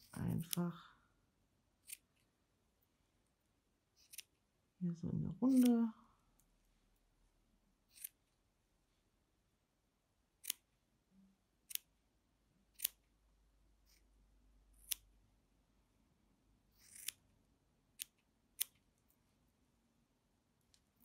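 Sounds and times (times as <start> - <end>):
scissors snipping threads: 0.0 - 0.7, 1.8 - 2.1, 4.0 - 4.3, 5.4 - 5.9, 7.9 - 8.2, 10.4 - 10.7, 11.6 - 11.9, 12.7 - 13.0, 14.8 - 15.1, 16.8 - 17.2, 17.9 - 18.8.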